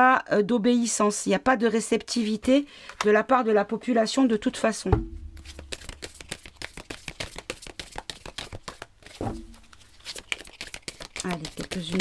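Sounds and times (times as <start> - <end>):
soft thump: 4.9 - 6.0, 9.2 - 9.6
cards being shuffled: 5.3 - 12.0.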